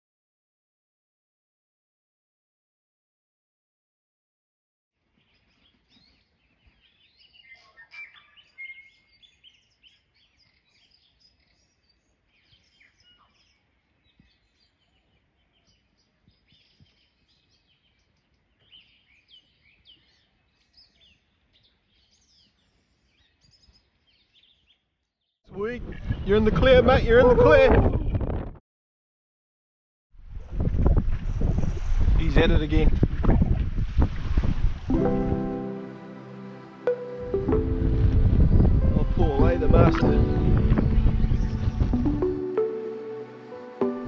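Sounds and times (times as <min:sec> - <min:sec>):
birds chirping: 0:05.1 - 0:26.5, 0:35.0 - 0:44.0.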